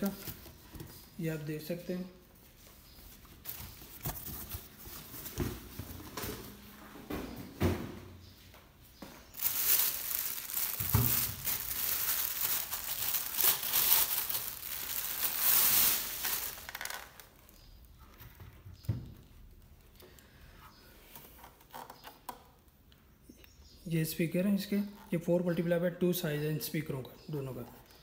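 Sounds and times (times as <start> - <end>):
plastic bag crinkling: 9.3 - 17.8.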